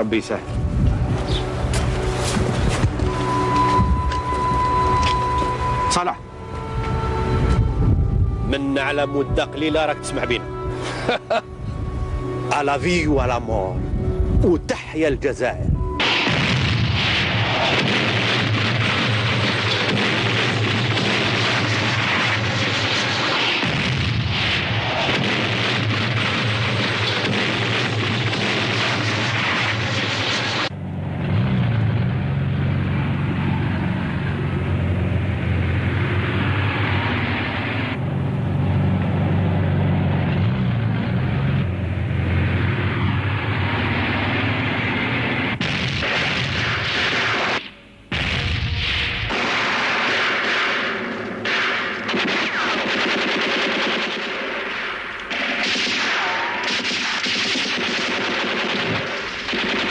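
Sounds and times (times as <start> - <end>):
military vehicle engine rumble: 0.0 - 14.5, 30.7 - 46.5
explosions: 15.8 - 32.2, 40.2 - 59.9
gunfire: 16.0 - 30.7, 44.0 - 59.9.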